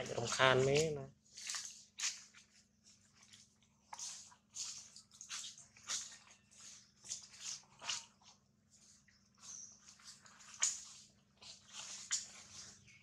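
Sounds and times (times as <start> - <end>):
rustling on dry leaves: 8.7 - 13.0.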